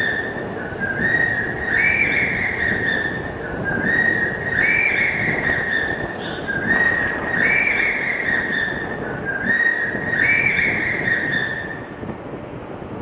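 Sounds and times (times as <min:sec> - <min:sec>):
whistled tone rising: 0:00.0 - 0:11.8
steady rushing noise: 0:00.0 - 0:13.0.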